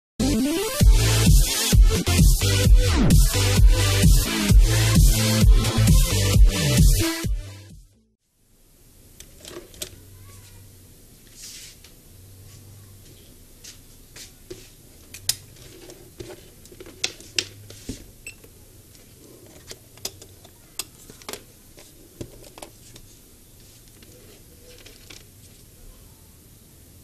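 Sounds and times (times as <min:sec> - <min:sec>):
faint low hum: 0:18.0 - 0:27.0.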